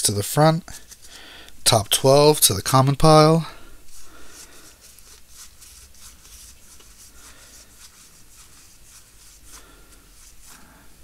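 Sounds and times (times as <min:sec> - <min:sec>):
cards sliding and rubbing: 0:00.8 - 0:01.2, 0:03.8 - 0:11.0.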